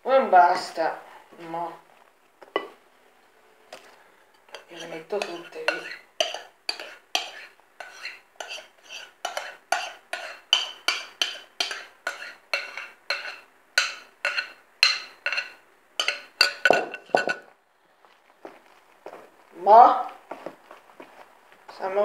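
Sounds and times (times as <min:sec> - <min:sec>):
utensil scraping and clinking bowl: 0:04.3 - 0:17.5.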